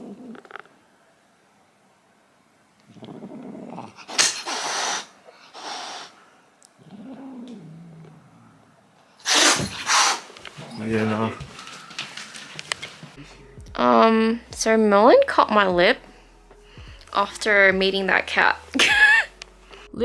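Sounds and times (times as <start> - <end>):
cat growling: 0.0 - 0.8, 2.8 - 6.2, 6.8 - 11.4
cat hissing: 2.9 - 7.7, 9.2 - 10.8.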